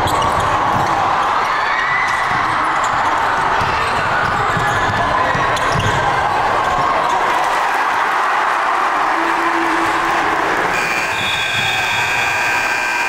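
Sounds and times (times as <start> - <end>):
basketball bouncing on wooden floor: 0.0 - 1.0, 2.0 - 6.9
crowd din: 0.0 - 13.0.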